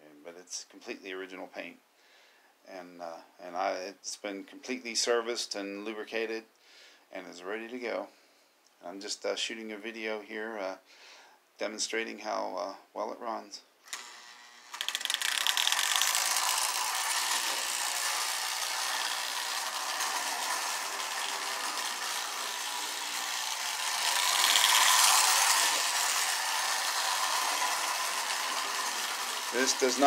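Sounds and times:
toy train whirring and clattering: 0:13.9 - 0:30.0.

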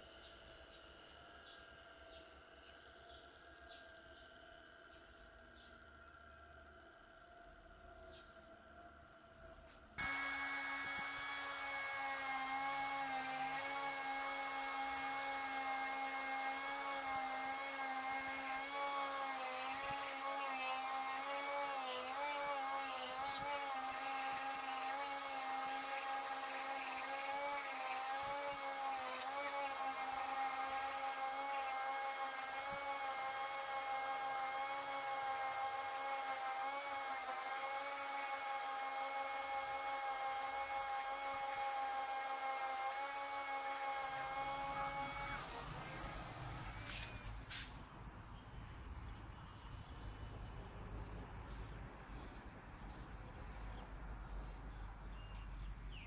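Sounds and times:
rotary tool whining on wood: 0:09.8 - 0:47.7.

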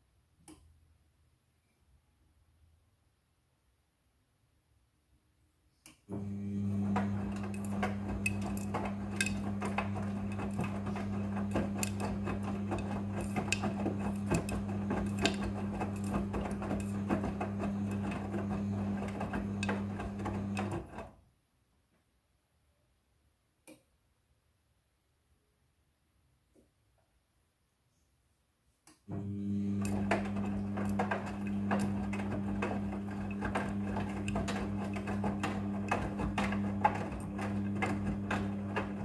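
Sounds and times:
washing machine motor hum: 0:06.1 - 0:21.2, 0:29.1 - 0:39.0
wet load tumbling in drum: 0:06.8 - 0:21.0.

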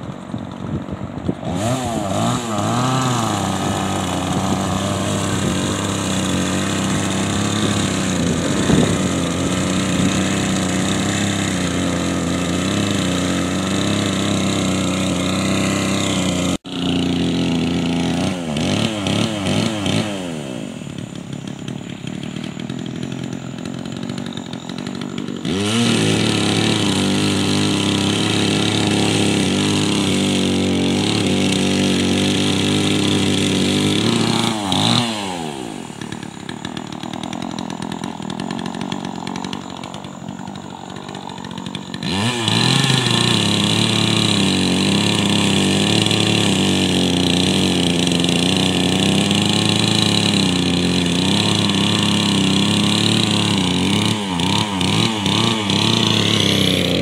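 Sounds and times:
chainsaw cutting log: 0:00.0 - 0:57.0.

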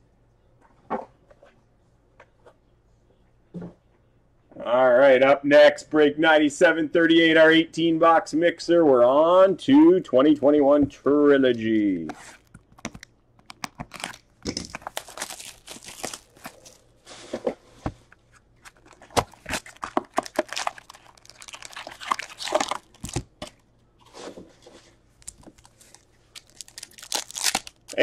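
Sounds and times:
packaging tearing and crinkling: 0:12.3 - 0:16.9, 0:18.6 - 0:23.6, 0:25.2 - 0:28.0.

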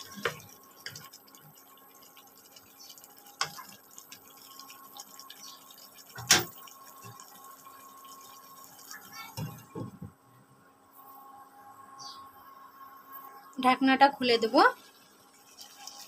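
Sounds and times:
curry bubbling in a pan: 0:00.0 - 0:09.8, 0:14.7 - 0:16.0
faint steady hum: 0:00.0 - 0:16.0.

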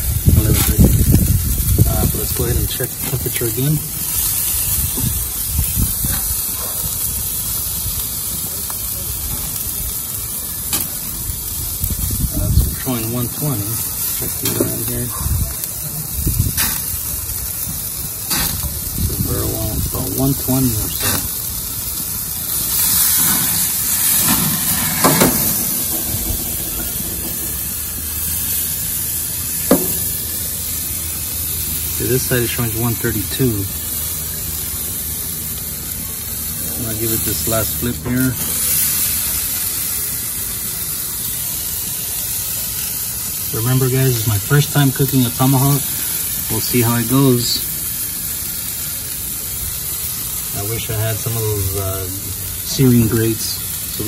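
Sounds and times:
grill hissing: 0:00.0 - 0:54.0
low rumble: 0:20.8 - 0:31.4.

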